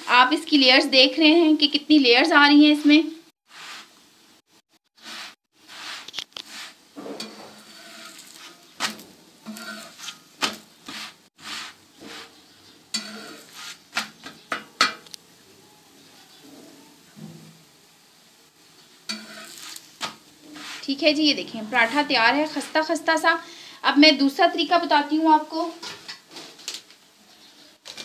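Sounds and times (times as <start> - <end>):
faint sizzle: 0.0 - 28.0
utensil scraping on hot griddle: 3.4 - 4.0, 4.8 - 14.6, 19.0 - 23.0.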